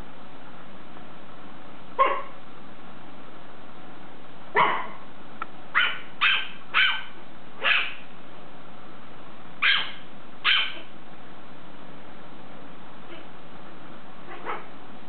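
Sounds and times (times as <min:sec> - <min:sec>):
small dogs yapping: 0:02.0 - 0:02.4, 0:04.6 - 0:05.0, 0:05.8 - 0:08.1, 0:09.6 - 0:10.9, 0:14.3 - 0:14.7.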